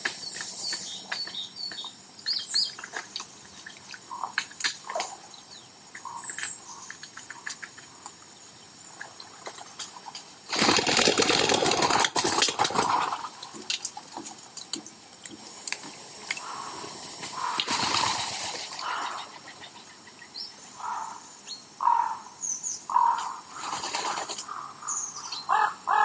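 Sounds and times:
pigeon wings clattering: 10.5s - 14.8s, 17.4s - 19.0s.

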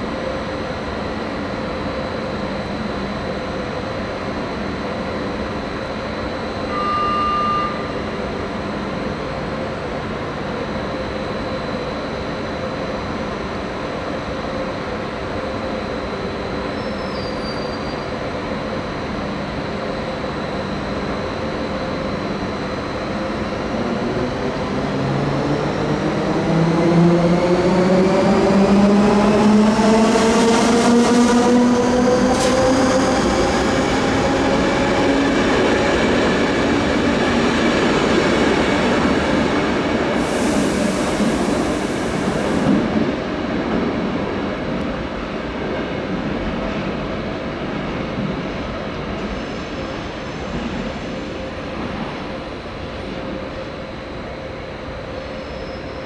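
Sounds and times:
short beep: 6.6s - 8.0s.

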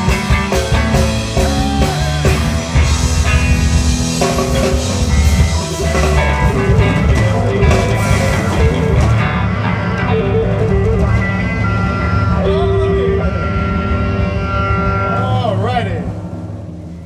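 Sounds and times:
drum kit: 0.0s - 14.3s
bass guitar: 0.0s - 16.8s
electric guitar: 0.0s - 17.0s.

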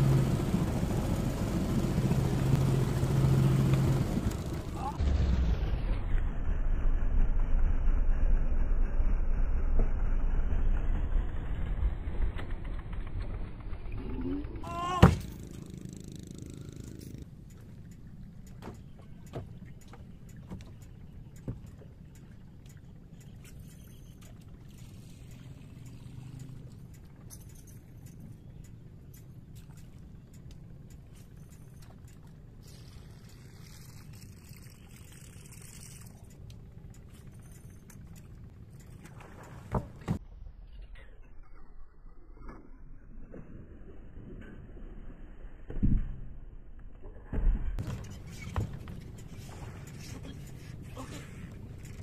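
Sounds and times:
low wind rumble: 0.0s - 23.3s
fishing lure cast: 29.1s - 39.6s.

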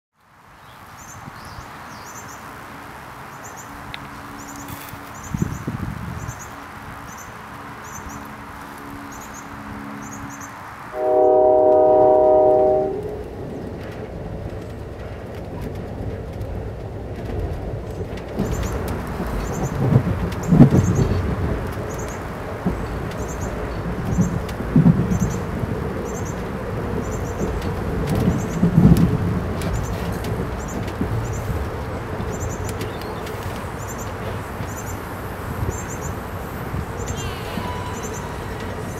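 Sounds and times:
moving train rumble: 0.2s - 38.9s
rushing outdoor background noise: 0.2s - 38.9s
train horn chord: 10.9s - 13.7s, 37.0s - 38.9s.

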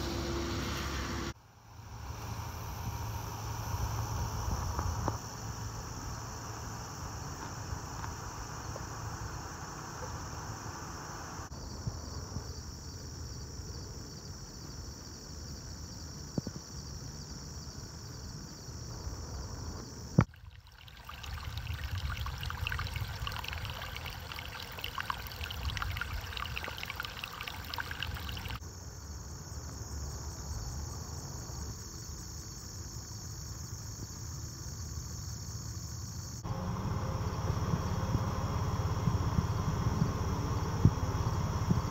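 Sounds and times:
insects chorus: 0.0s - 41.9s
water trickling and gurgling: 20.2s - 28.6s.

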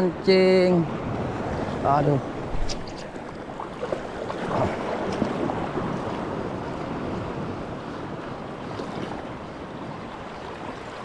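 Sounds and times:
wind buffeting microphone: 0.0s - 11.0s
sea waves washing against rocks: 0.6s - 11.0s.

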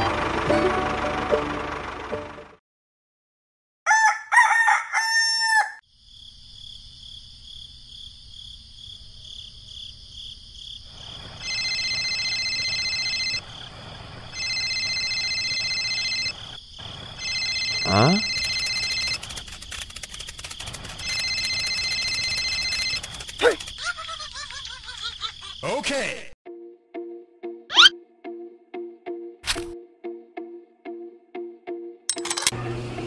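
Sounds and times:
rooster crowing: 3.9s - 5.8s
electronic telephone ringing: 11.4s - 13.4s, 14.3s - 16.6s, 17.2s - 19.3s, 21.0s - 23.2s
steady high tone: 17.2s - 19.2s.

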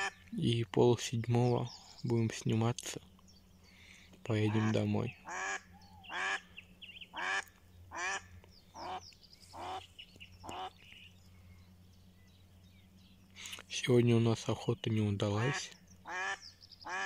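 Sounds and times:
duck quacking: 0.0s - 0.2s, 4.4s - 6.5s, 7.1s - 10.8s, 15.2s - 17.0s.

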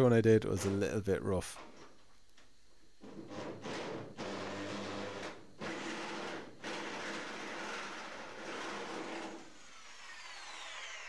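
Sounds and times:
electric drill cutting sheet steel: 3.2s - 11.0s.

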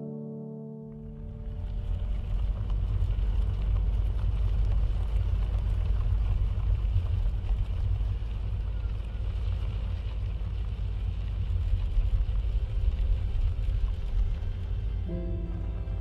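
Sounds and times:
music with held notes: 0.0s - 1.8s, 15.0s - 16.0s
pickup truck driving rumble: 1.1s - 16.0s.

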